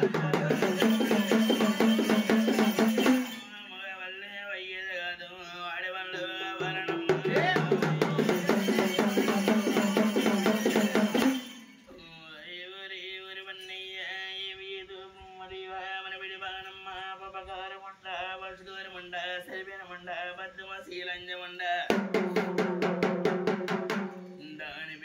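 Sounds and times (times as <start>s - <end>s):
hand drum strokes: 0.0s - 3.5s, 21.9s - 24.4s
man singing: 0.0s - 11.3s, 11.9s - 22.6s, 24.3s - 25.0s.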